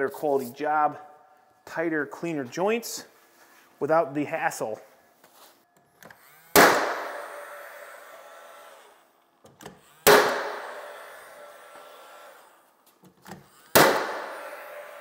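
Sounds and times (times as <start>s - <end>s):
nail gun firing: 6.5s - 7.3s, 10.0s - 11.0s, 13.7s - 15.0s.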